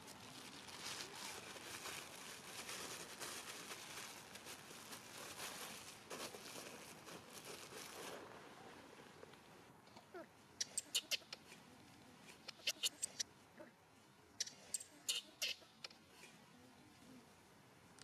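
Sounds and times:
dry leaves crackling: 0.0 - 9.2.

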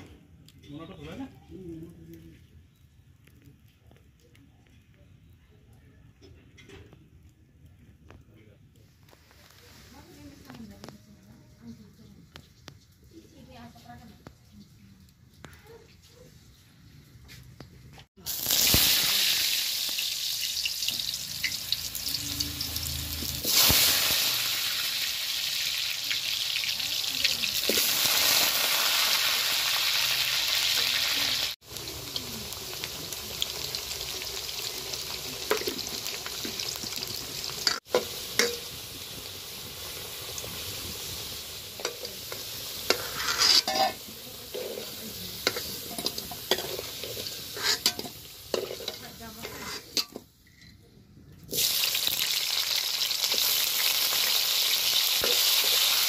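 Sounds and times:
potatoes sizzling in hot oil: 18.2 - 50.3, 51.4 - 56.0
ladle scraping and clinking pan: 41.8 - 50.8.

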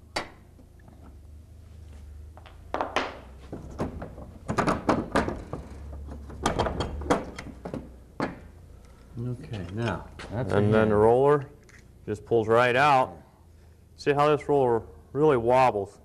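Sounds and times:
metal knocks and clunks: 2.8 - 8.5.

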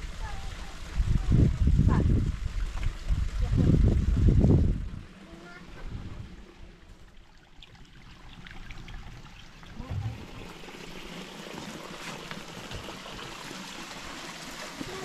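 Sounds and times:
spring water trickling: 0.3 - 15.0.

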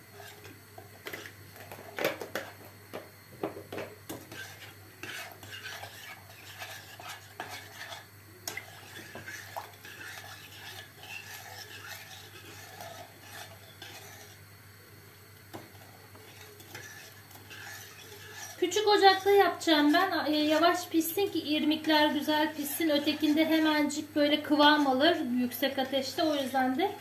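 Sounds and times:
metal spoon scraping a pot: 4.1 - 14.4, 15.7 - 27.0.

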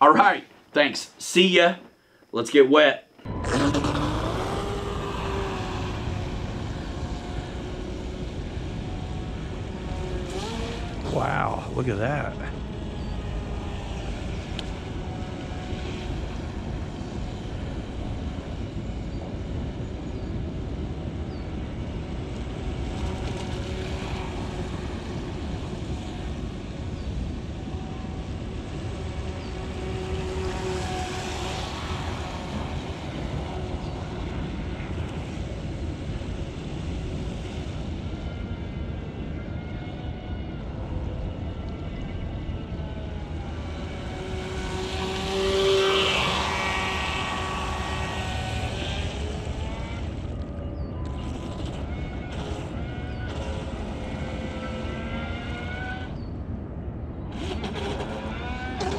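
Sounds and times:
electric motor whining: 3.2 - 56.3, 57.3 - 58.9.

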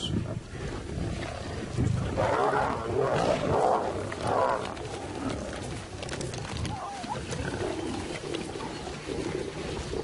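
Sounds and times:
lions growling: 0.5 - 10.0
lions tearing and chewing meat: 2.2 - 10.0.

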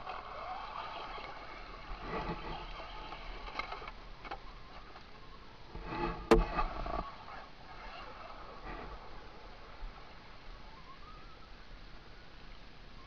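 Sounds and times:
toy truck electric motor whining: 0.0 - 5.0, 6.0 - 10.4.

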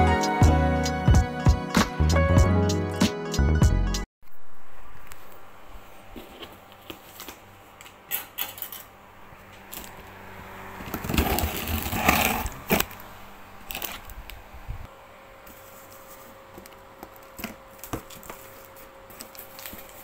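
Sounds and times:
cardboard rustling and scraping: 6.1 - 7.5, 10.8 - 13.0, 15.5 - 20.0.

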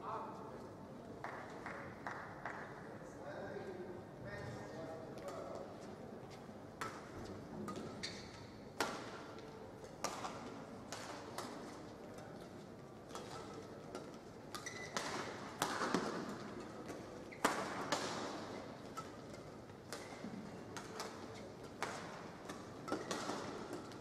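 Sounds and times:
rackets striking shuttlecock: 6.8 - 9.4, 10.0 - 11.7, 13.1 - 24.0
shoe squeaks on court floor: 8.0 - 8.5, 14.6 - 15.2.

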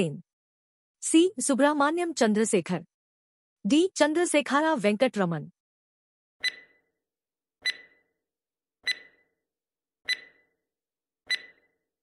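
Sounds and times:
timer ticks with ringing tone: 6.4 - 6.9, 7.6 - 8.2, 8.8 - 9.4, 10.0 - 10.6, 11.2 - 11.9.

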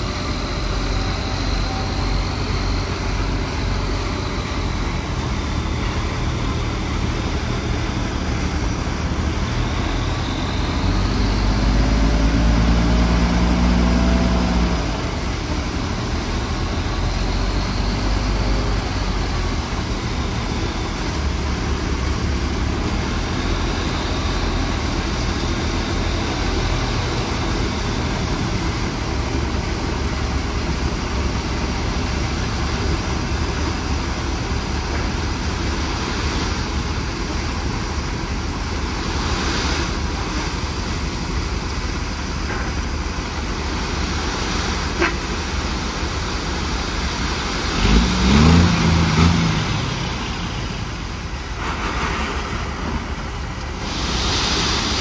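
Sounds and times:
diesel engine running: 0.0 - 55.0
pitched engine wavering: 0.0 - 55.0.

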